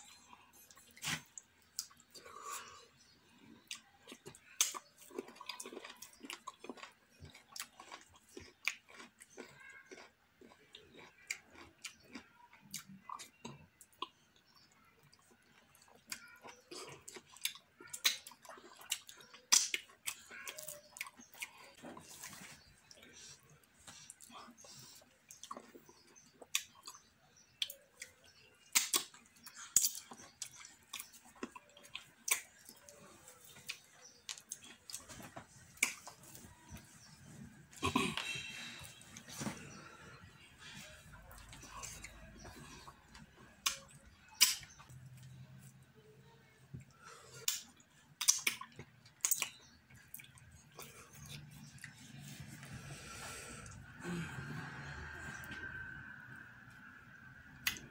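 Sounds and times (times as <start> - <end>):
wet chewing: 0.0 - 45.8, 46.7 - 54.0
lip smacks and clicks: 17.2 - 21.5, 27.6 - 37.1, 41.3 - 45.4, 46.8 - 52.7, 57.6 - 57.9.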